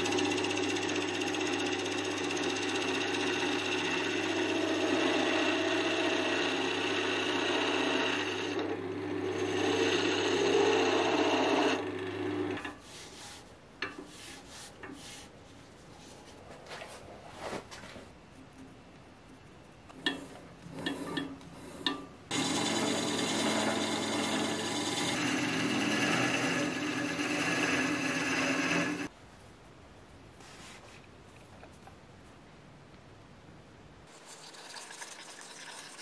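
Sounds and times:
lathe motor hum: 0.0 - 12.7, 20.0 - 29.1
chisel scraping spinning wood: 0.0 - 15.3, 19.9 - 29.1.

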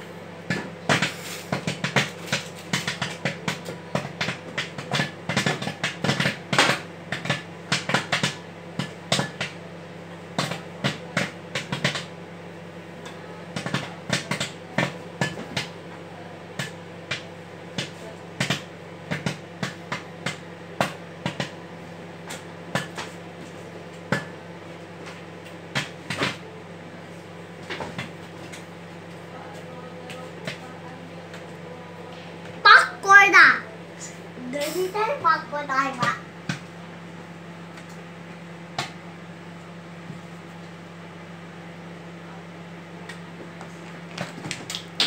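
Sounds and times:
microwave oven humming: 0.0 - 45.0
popcorn popping: 0.4 - 12.2, 12.8 - 15.8, 16.4 - 29.3, 37.6 - 40.8, 43.0 - 45.0.

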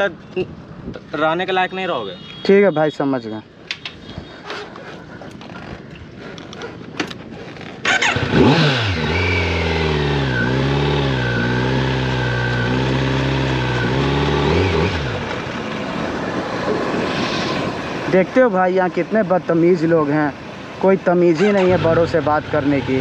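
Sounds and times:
motorcycle engine revving: 7.8 - 16.2, 21.4 - 23.0.

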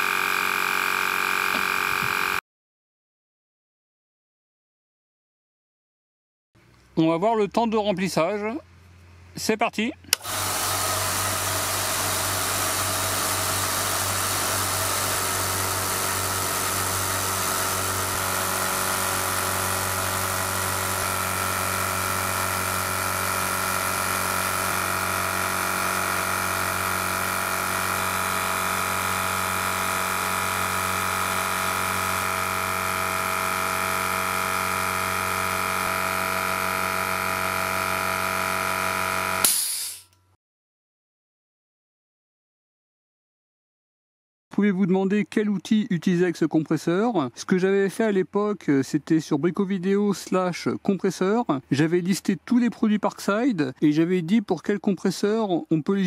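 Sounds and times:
air compressor running: 0.0 - 2.4, 10.1 - 40.1
short loud burst: 39.4 - 40.0.

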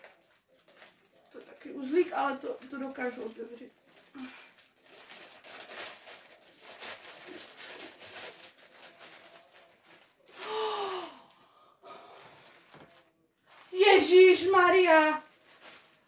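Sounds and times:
plastic bag crinkling: 0.0 - 11.4, 12.1 - 16.0
short sigh-like voice: 10.4 - 12.2.

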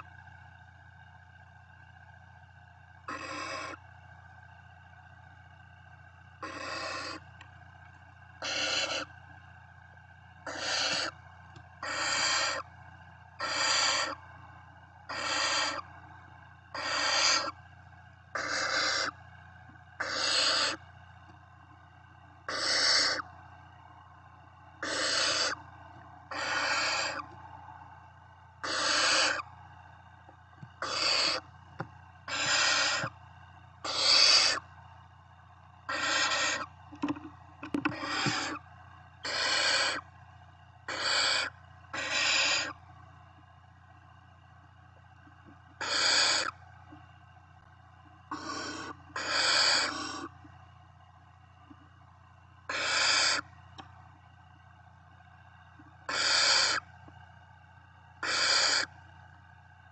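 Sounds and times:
owl chicks hissing begging calls: 3.1 - 3.8, 6.4 - 7.3, 8.4 - 9.2, 10.4 - 11.2, 11.8 - 12.7, 13.4 - 14.2, 15.1 - 15.9, 16.7 - 17.6, 18.3 - 19.2, 20.0 - 20.8, 22.4 - 23.3, 24.8 - 25.7, 26.3 - 27.3, 28.6 - 29.5, 30.8 - 31.5, 32.3 - 33.1, 33.8 - 34.7, 35.9 - 36.7, 37.9 - 38.6, 39.2 - 40.0, 40.8 - 42.8, 45.8 - 46.6, 48.3 - 50.3, 52.7 - 53.5, 56.0 - 56.9, 58.2 - 58.9.

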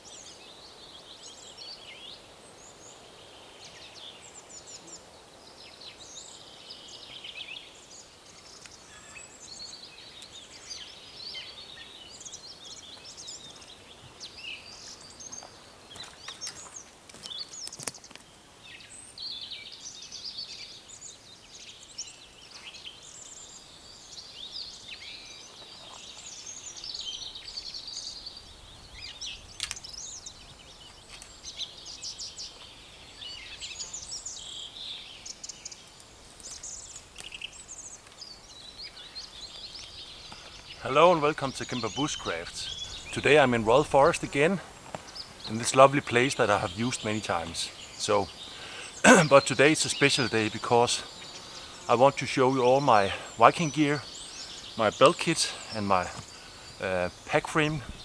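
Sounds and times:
songbirds chirping and trilling: 0.0 - 58.0
sharp clicks: 29.6 - 29.9.

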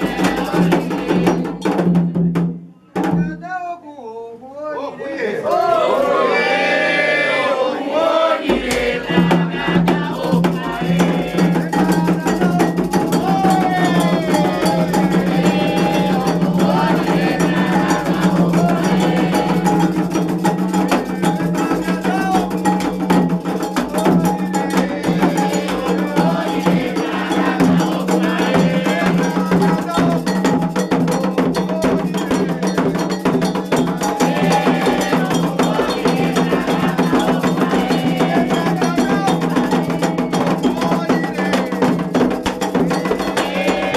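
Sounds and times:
voices singing a chant: 0.0 - 2.4, 4.7 - 43.9
drums: 0.0 - 3.6, 8.4 - 43.9
iron bell beating fast pattern: 10.3 - 43.9.

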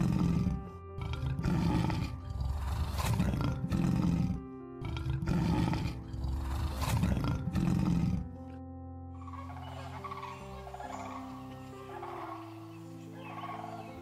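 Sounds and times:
lion roaring: 0.0 - 8.4
background music: 0.0 - 14.0.

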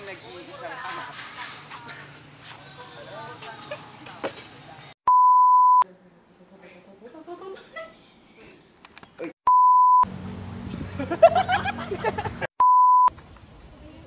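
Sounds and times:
censor bleeps: 5.1 - 5.8, 9.5 - 10.0, 12.6 - 13.1.

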